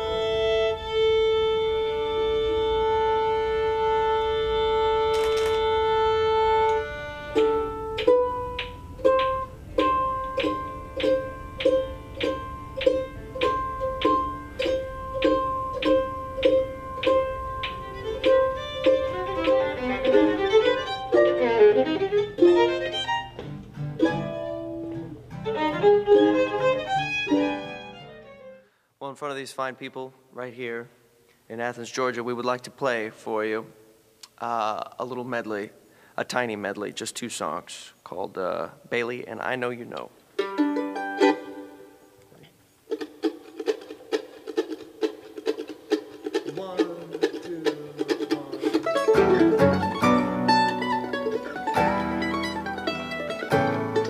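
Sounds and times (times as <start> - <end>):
fiddle bowed note: 0.0 - 28.6, 40.4 - 42.0, 47.6 - 54.0
string band warming up: 0.0 - 28.7, 39.7 - 54.0
plucked string note repeating: 5.7 - 28.3, 43.5 - 54.0.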